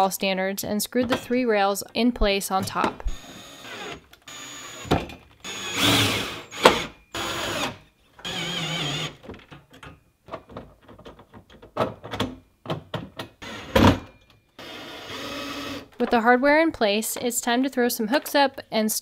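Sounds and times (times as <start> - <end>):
cordless drill driving screws: 3.1 - 9.2, 14.6 - 15.9.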